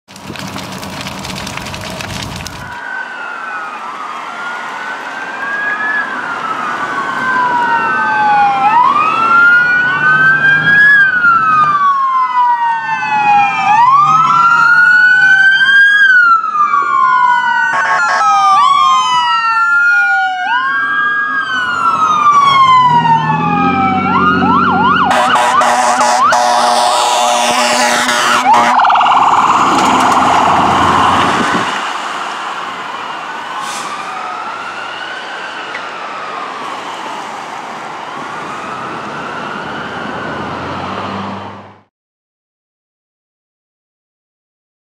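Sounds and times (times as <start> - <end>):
emergency sirens wailing: 0.4 - 41.9
fast yelp siren: 2.8 - 31.6, 32.5 - 40.7
fire truck air horn: 17.6 - 18.7, 24.4 - 29.3, 33.6 - 34.3
broad rushing noise: 27.6 - 34.4.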